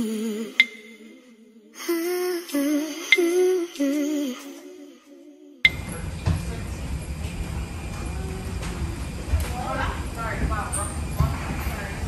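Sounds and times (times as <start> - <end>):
person humming a melody: 0.0 - 5.7.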